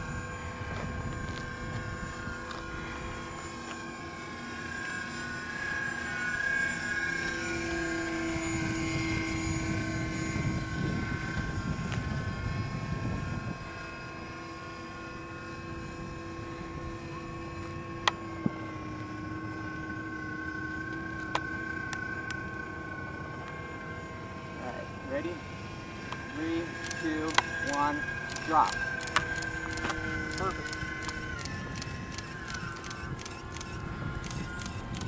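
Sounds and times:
model airplane motor droning: 0:00.0 - 0:35.0
sharp clicks: 0:26.8 - 0:35.0.

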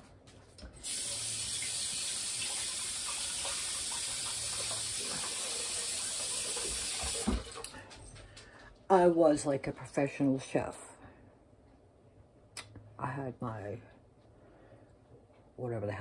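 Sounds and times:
tap running water into sink: 0:00.8 - 0:07.7.

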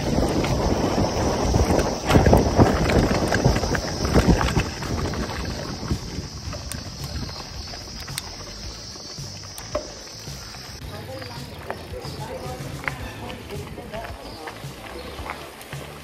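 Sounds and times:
mountain bike knocks and rattles: 0:00.0 - 0:16.0
wind buffeting microphone: 0:00.0 - 0:16.0.

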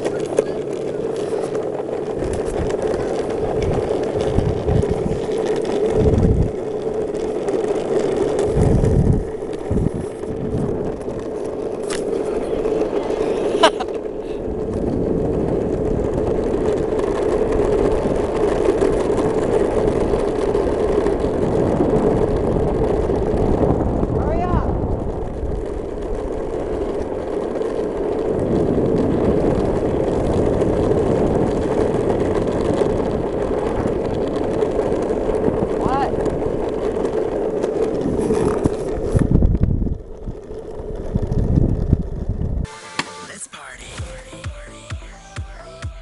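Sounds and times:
wind noise: 0:00.0 - 0:42.7
longboard wheels rolling on asphalt: 0:00.0 - 0:46.0.

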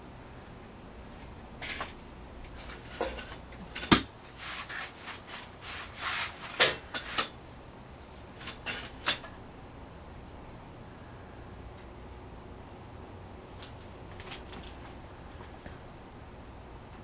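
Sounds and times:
sheet metal rubbing and scraping: 0:02.6 - 0:07.3.

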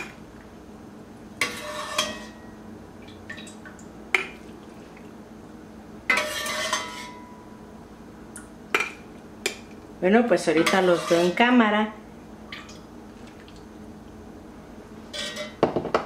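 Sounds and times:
metal ladle scraping and clinking: 0:01.4 - 0:02.4, 0:06.1 - 0:07.3, 0:10.6 - 0:11.4, 0:15.1 - 0:15.6.

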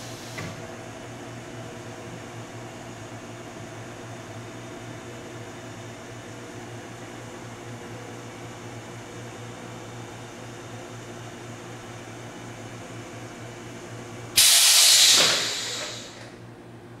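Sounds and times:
even hiss: 0:14.4 - 0:16.2.

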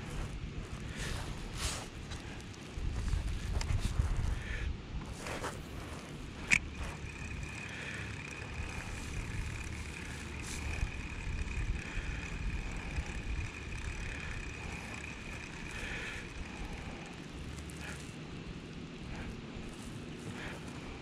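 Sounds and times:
wind on microphone: 0:00.0 - 0:07.3
fishing reel whirring: 0:05.2 - 0:21.0.

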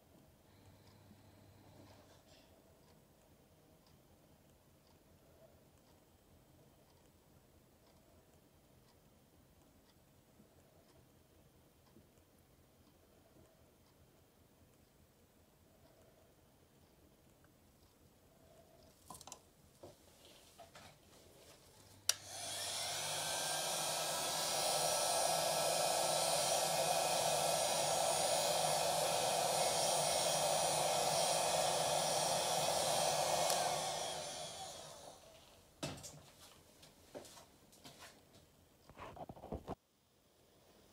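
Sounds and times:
heat gun fan blowing: 0:22.0 - 0:35.7
heat gun switch click: 0:22.1 - 0:35.1.

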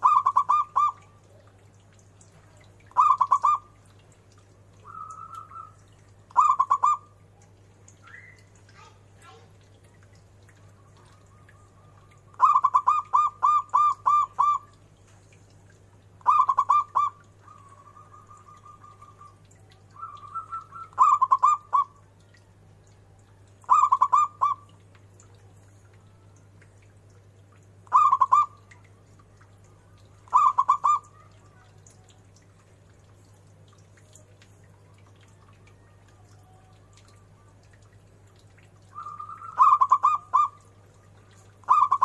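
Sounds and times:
dove cooing: 0:00.0 - 0:01.5, 0:02.9 - 0:03.7, 0:04.8 - 0:07.1, 0:10.8 - 0:14.8, 0:16.2 - 0:22.0, 0:23.6 - 0:24.7, 0:27.9 - 0:28.6, 0:30.3 - 0:31.8, 0:38.9 - 0:40.7, 0:41.5 - 0:42.0.

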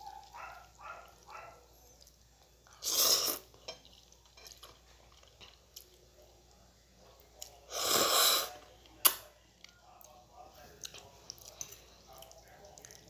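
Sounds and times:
soft chewing: 0:00.0 - 0:13.0
loud noodle slurp: 0:02.8 - 0:03.5.

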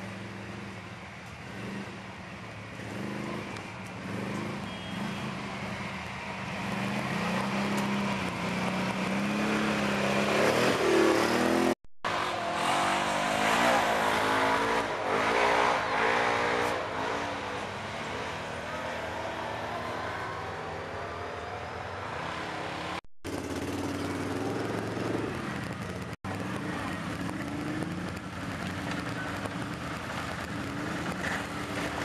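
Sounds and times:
quad bike engines revving: 0:00.0 - 0:32.0.

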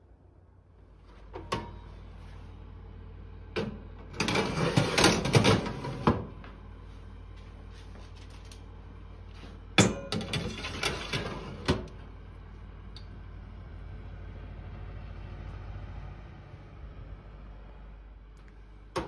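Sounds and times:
metal trays scraping on oven racks: 0:04.1 - 0:06.2, 0:10.1 - 0:11.9.

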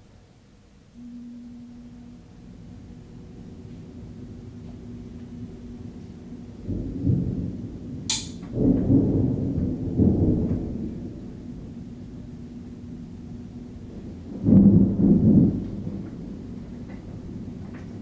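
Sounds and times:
steady low hum: 0:00.0 - 0:18.0
thunder rumbling: 0:01.0 - 0:18.0
sharp thunder crack: 0:06.7 - 0:11.6, 0:14.3 - 0:16.6.

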